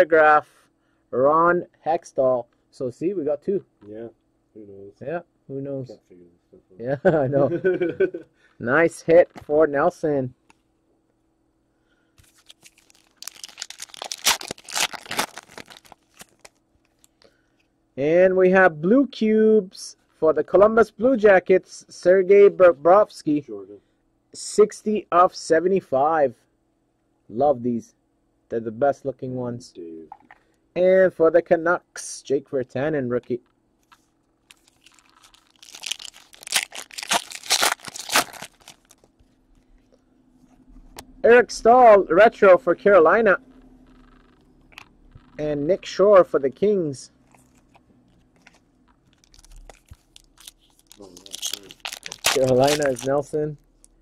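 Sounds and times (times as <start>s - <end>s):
foil wrapper tearing and crinkling: 12.2s - 16.6s, 34.5s - 39.1s, 49.0s - 54.0s.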